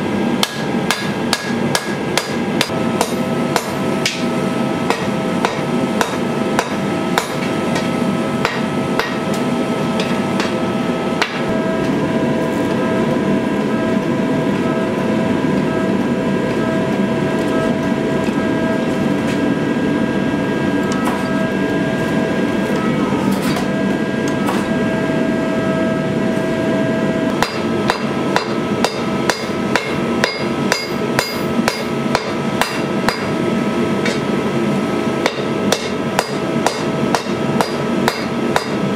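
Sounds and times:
forge humming: 0.0s - 38.9s
hammer striking blade on anvil: 0.4s - 4.3s, 4.9s - 9.4s, 10.0s - 10.6s, 11.2s - 11.5s, 27.4s - 33.4s, 35.2s - 38.8s.

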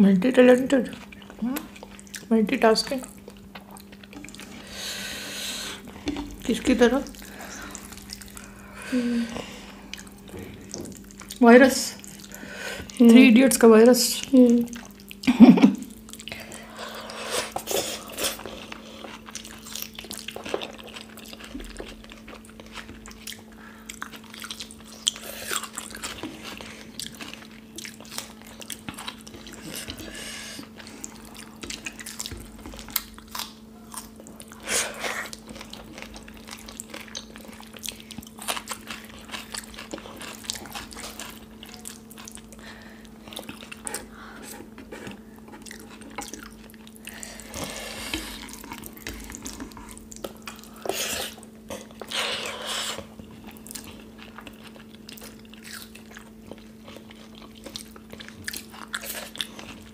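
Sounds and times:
steady low hum: 0.0s - 59.9s
chewing and lip smacks: 3.0s - 4.6s, 5.8s - 8.7s, 17.5s - 59.9s.

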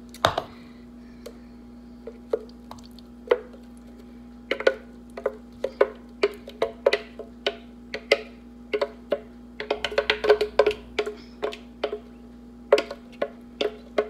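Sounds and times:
spatula knocking in plastic pitcher: 4.5s - 12.0s, 12.7s - 14.0s.

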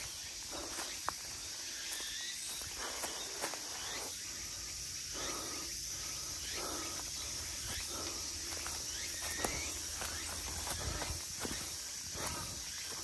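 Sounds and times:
footsteps on trail: 0.0s - 13.0s.

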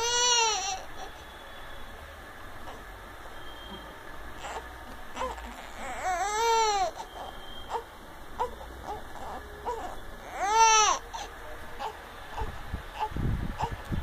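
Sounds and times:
infant crying: 0.0s - 1.2s, 4.4s - 13.8s.

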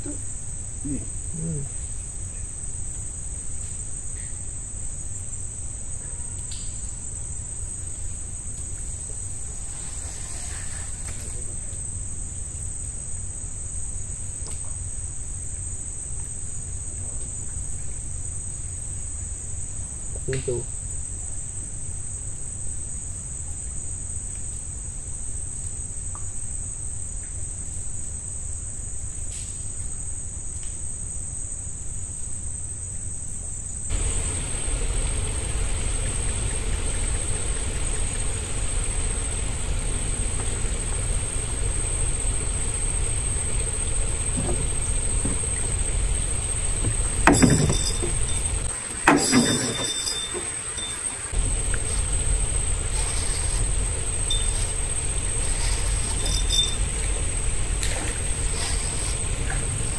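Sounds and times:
crickets chirring: 0.0s - 59.9s
low steady rumble: 0.0s - 59.9s
fishing rod knocks and rustles: 47.2s - 48.3s.

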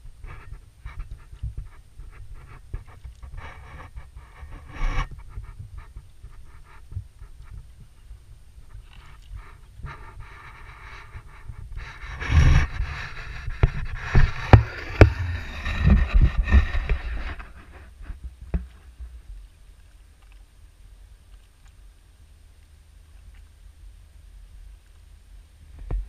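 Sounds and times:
sharp knocks on camera: 13.6s - 17.5s.

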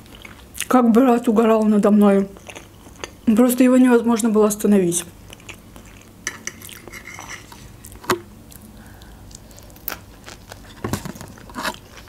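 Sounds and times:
metal fork scraping frying pan: 6.4s - 7.5s.

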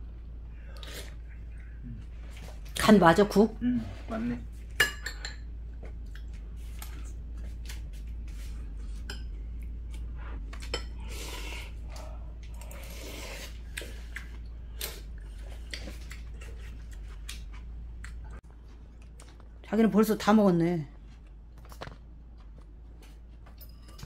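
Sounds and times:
steady low hum: 0.0s - 24.0s
utensils clinking on ceramic bowls: 4.8s - 5.5s, 23.5s - 24.0s.

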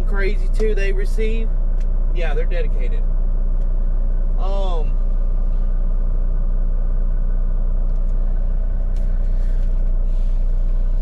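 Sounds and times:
diesel truck engine idling: 0.0s - 11.0s.

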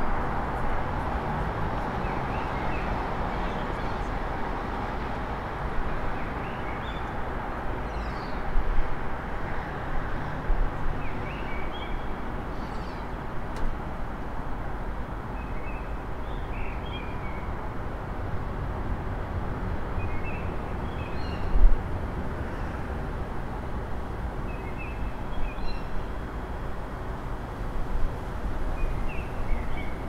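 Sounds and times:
city traffic hum: 0.0s - 30.0s
songbird singing: 11.0s - 13.2s, 20.0s - 21.6s, 24.5s - 26.0s, 28.8s - 30.0s.

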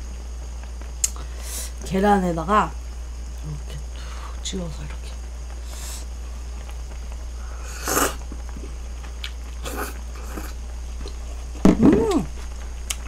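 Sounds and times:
low steady hum: 0.0s - 13.0s
person slurping noodles: 7.6s - 8.2s, 9.6s - 10.6s.

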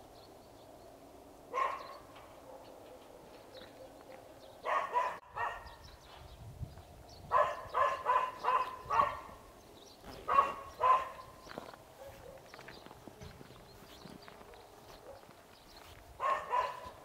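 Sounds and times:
dog barking: 1.5s - 5.8s, 7.3s - 9.4s, 10.2s - 11.4s, 12.0s - 12.6s, 14.9s - 15.4s, 16.2s - 17.0s.

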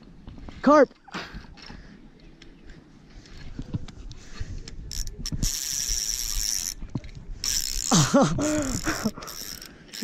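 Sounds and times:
fishing reel clicking and whirring: 4.6s - 10.0s
high buzz of reel drag: 4.8s - 10.0s.

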